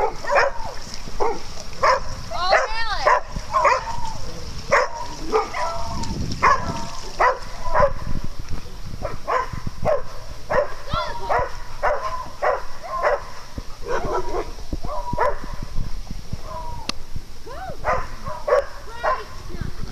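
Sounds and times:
dog yipping: 0:00.0 - 0:04.0, 0:06.4 - 0:08.0
dog barking in play: 0:00.0 - 0:04.1, 0:04.7 - 0:08.1, 0:09.0 - 0:15.6, 0:17.8 - 0:19.3.

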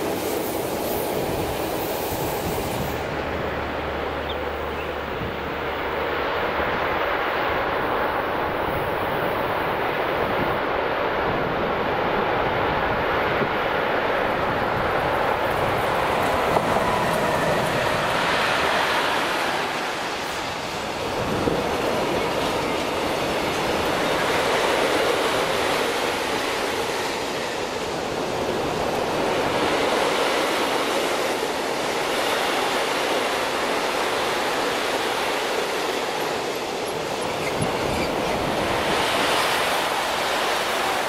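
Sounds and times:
freight train wheels rolling: 0:14.1 - 0:41.0.

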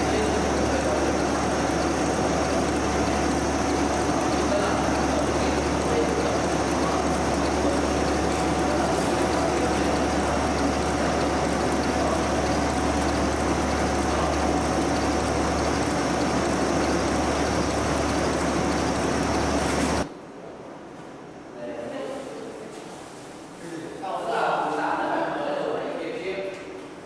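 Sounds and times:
processing machine whirring: 0:00.0 - 0:20.2.

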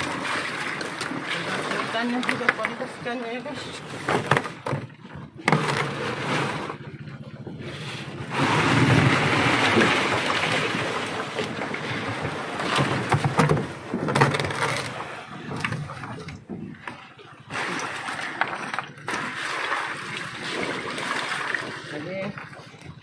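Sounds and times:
sea noise: 0:00.0 - 0:23.0
wind: 0:00.0 - 0:23.0
ice chunks sliding: 0:05.5 - 0:06.8, 0:08.3 - 0:11.8.

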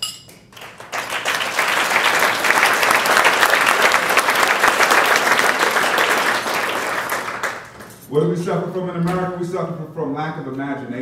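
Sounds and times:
crowd applause: 0:00.5 - 0:08.0.

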